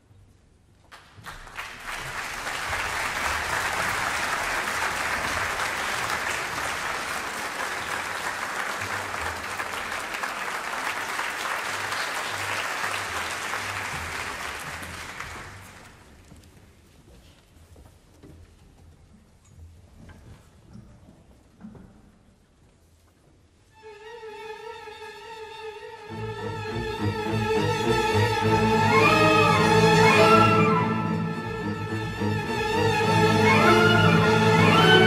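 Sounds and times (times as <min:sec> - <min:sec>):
audience applauding: 0:00.9 - 0:16.1.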